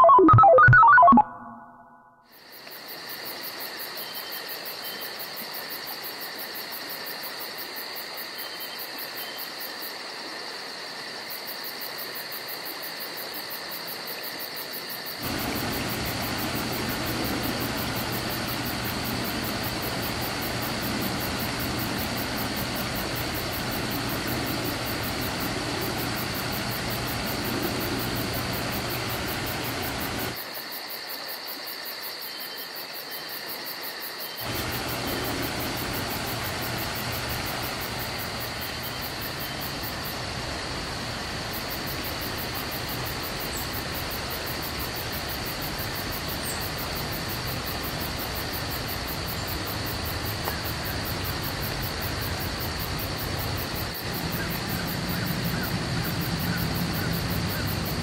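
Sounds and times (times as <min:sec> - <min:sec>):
insect chorus chirring: 0:02.3 - 0:58.0
hiss: 0:15.2 - 0:31.0, 0:34.4 - 0:58.0.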